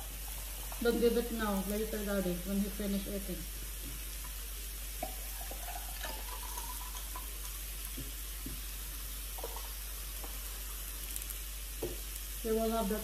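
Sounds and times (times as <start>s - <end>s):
meat sizzling on grill: 0.0s - 13.0s
soda pouring into glass: 4.2s - 10.7s.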